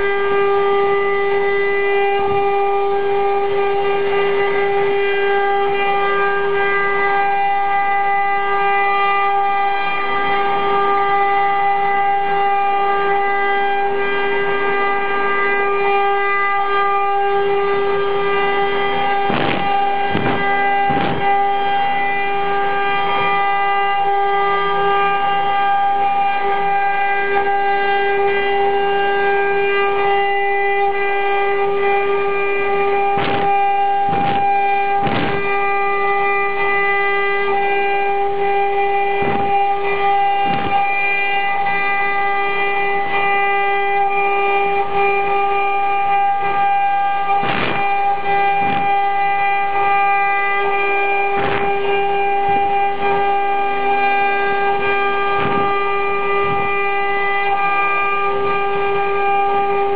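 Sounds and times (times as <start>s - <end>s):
router spindle high-pitched whine: 0.0s - 59.9s.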